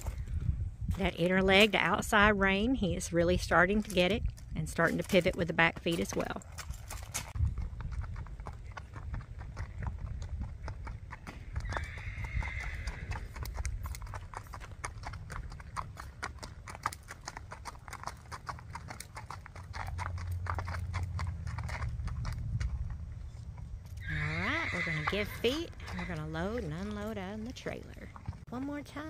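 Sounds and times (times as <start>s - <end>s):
hooves on gravel: 0.0s - 29.0s.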